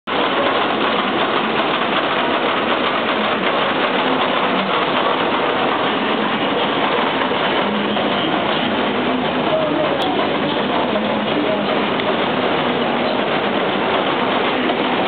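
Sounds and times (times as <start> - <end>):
sewing machine clattering: 0.1 - 15.0.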